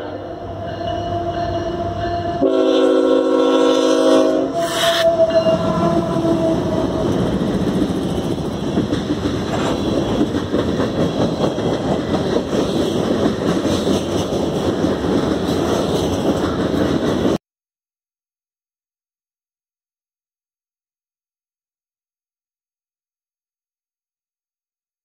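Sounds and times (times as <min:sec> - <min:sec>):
diesel locomotive passing: 0:00.0 - 0:17.4
freight cars rumbling: 0:05.1 - 0:17.4
wheels clicking over rails: 0:06.1 - 0:17.4.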